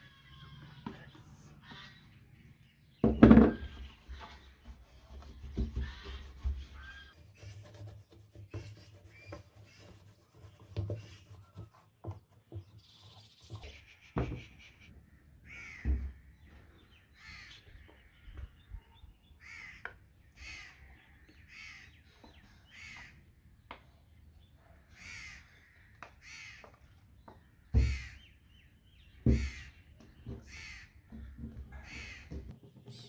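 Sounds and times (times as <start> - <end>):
cloth rubbing wax on fiberglass: 3.8 - 12.0
crows cawing: 15.0 - 18.5, 19.4 - 22.0, 22.7 - 23.2, 24.9 - 26.9, 27.6 - 28.3, 29.3 - 29.8, 30.4 - 32.5.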